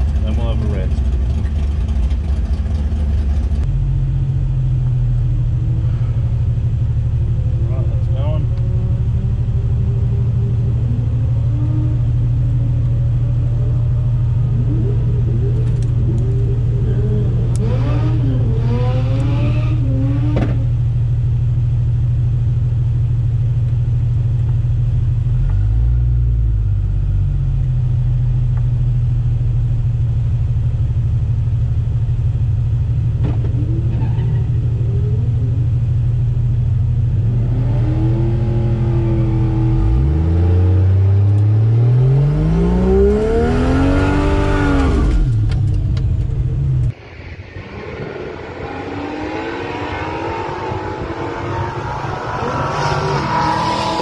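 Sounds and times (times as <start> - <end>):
car engine idling: 0.0 - 18.9, 19.8 - 37.3, 44.2 - 47.0
car engine revving: 0.0 - 21.6, 32.0 - 54.0.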